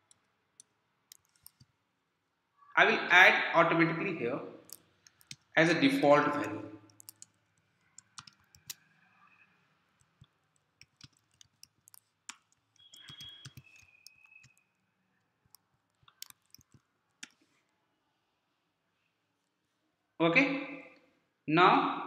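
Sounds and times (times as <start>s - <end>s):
keyboard typing: 0.0s - 1.8s, 4.6s - 5.6s, 6.2s - 17.6s.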